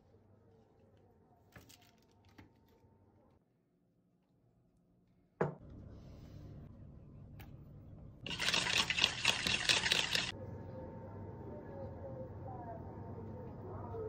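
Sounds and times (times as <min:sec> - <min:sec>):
wire whisk rattling in bowl: 0:08.3 - 0:10.3.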